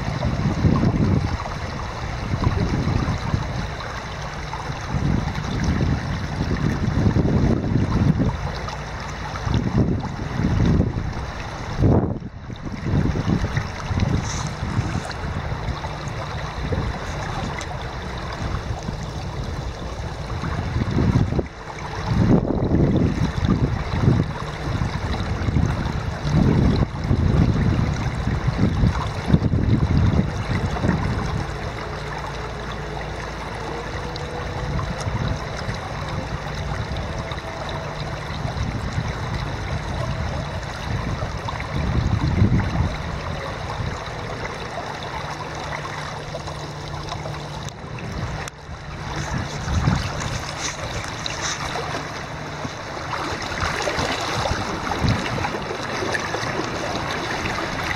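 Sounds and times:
river water over stones: 0.0 - 57.9.

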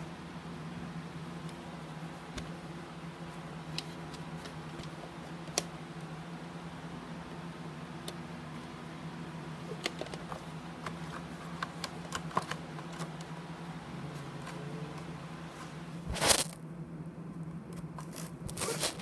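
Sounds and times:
low steady hum: 0.0 - 19.0
handling clicks and scrapes: 14.3 - 16.6, 17.8 - 19.0.

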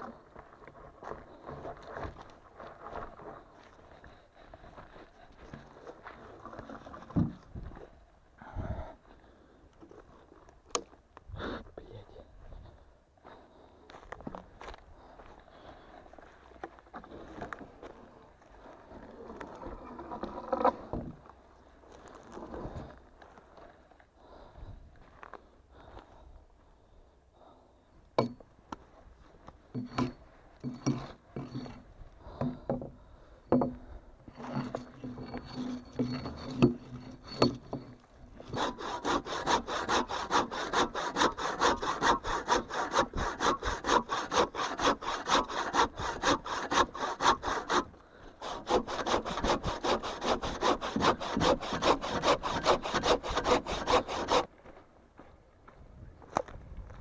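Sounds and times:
hand saw cutting wood: 29.8 - 32.8, 34.3 - 54.5.

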